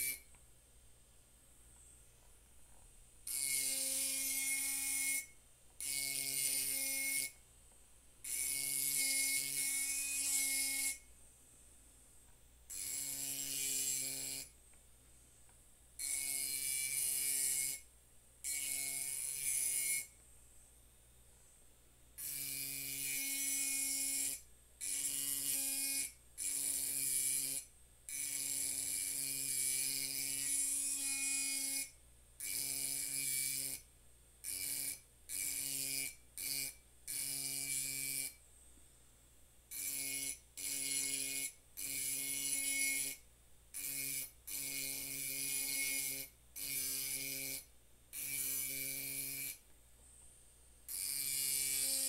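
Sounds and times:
rotary tool grinding glass: 3.3 - 7.4, 50.9 - 52.0.

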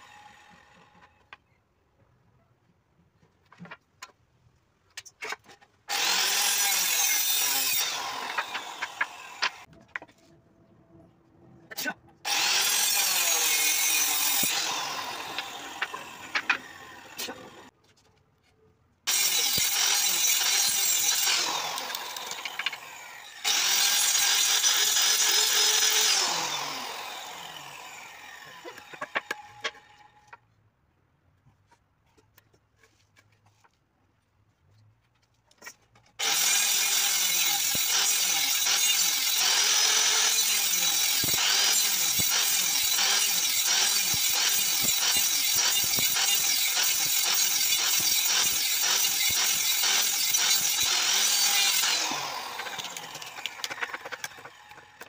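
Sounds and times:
electric circular saw cutting wood: 0.0 - 1.1, 5.9 - 9.7, 12.2 - 17.7, 19.1 - 30.4, 36.2 - 55.0.

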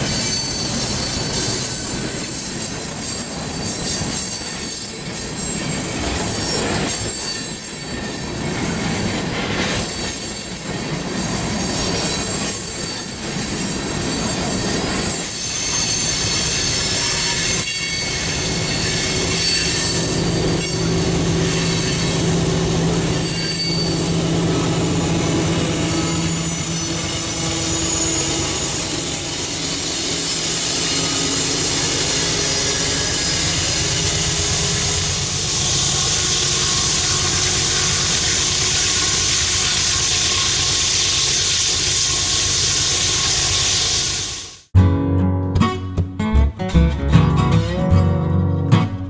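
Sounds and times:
wheel-on-rail noise: 0.0 - 44.3
diesel locomotive passing: 7.7 - 44.6
squealing wheel flanges: 11.9 - 34.9.

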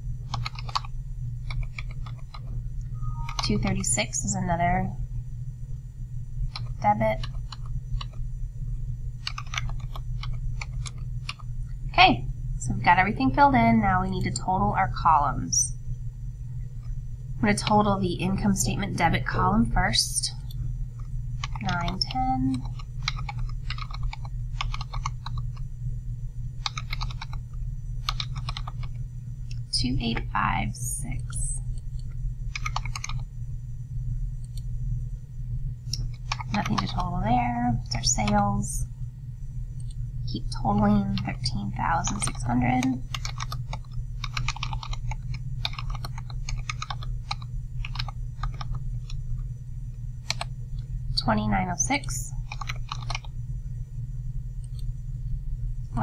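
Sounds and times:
steady low hum: 0.0 - 56.0
typing on computer keyboard: 0.3 - 2.5, 9.2 - 11.4, 21.4 - 25.5, 26.6 - 27.4, 28.0 - 28.9, 32.5 - 33.2, 36.1 - 37.1, 42.1 - 48.8, 52.5 - 53.3
keyboard keys tapping: 3.0 - 3.6.

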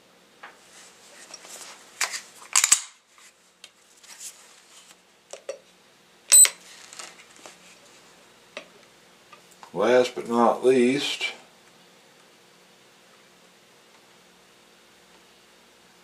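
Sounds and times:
short high electronic beep: 6.3 - 6.6.

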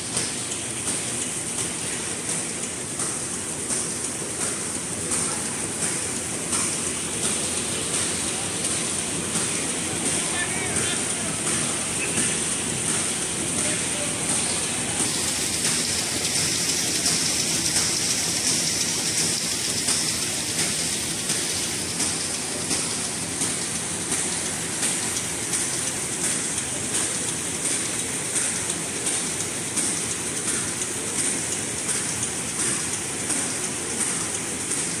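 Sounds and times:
machine clatter: 0.0 - 35.0
machine rush and hiss: 0.0 - 35.0.

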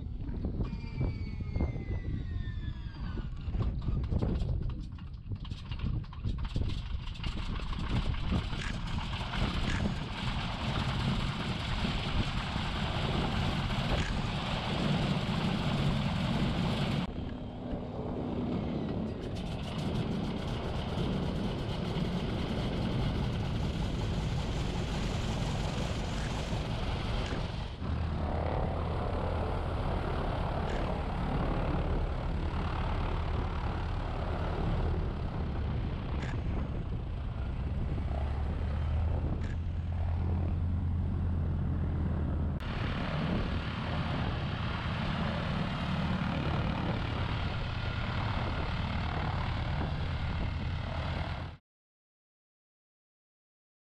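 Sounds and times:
radial aircraft engines droning: 0.0 - 4.0, 6.8 - 51.6.

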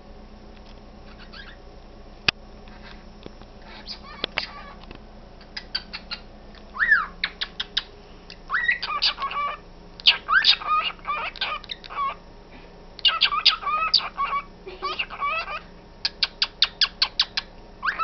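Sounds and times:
parrots chirping and chattering: 1.0 - 1.6, 3.6 - 12.2, 13.0 - 18.0.

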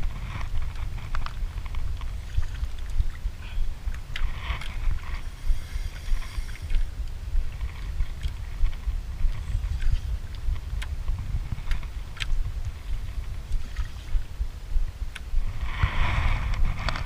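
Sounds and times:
water moving against canoe: 0.0 - 17.0
wind buffeting microphone: 0.0 - 17.0.

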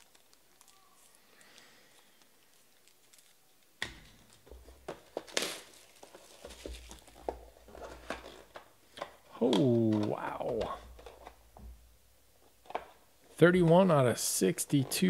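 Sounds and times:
plastic wrap tearing and crinkling: 0.0 - 8.8.

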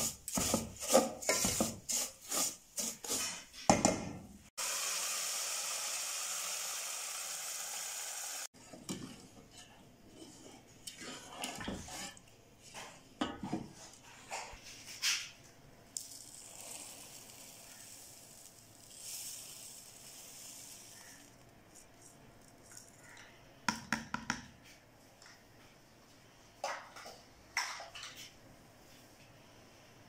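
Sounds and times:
spoon stirring in metal pot: 0.0 - 3.6, 8.6 - 14.5
spoon scraping and knocking pot: 0.0 - 4.0
sugar pouring with soft hiss: 16.0 - 23.1.

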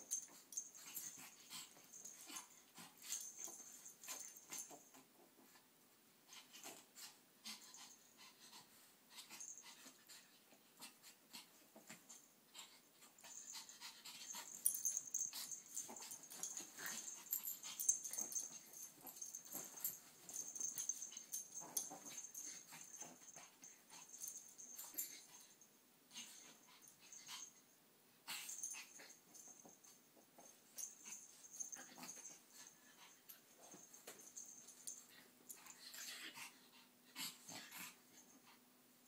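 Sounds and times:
puppies breathing and snuffling: 0.0 - 38.8
puppies scuffling: 13.3 - 25.3
bedding rustling: 14.2 - 25.2.

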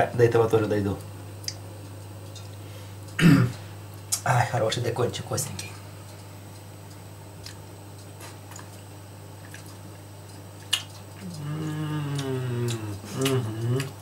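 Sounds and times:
low steady hum: 0.0 - 14.0
man humming while chewing: 10.6 - 14.0.

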